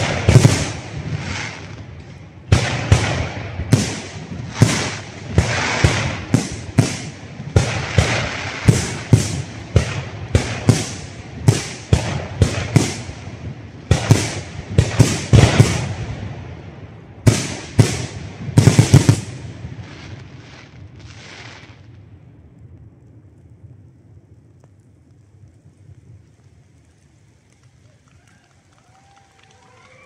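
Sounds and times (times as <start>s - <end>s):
firework hiss: 0.0s - 16.3s, 17.3s - 22.0s.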